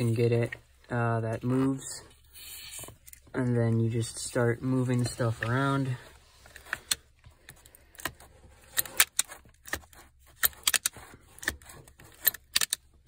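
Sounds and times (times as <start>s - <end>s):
metal latch clicking and clacking: 10.4s - 11.5s, 12.2s - 12.9s.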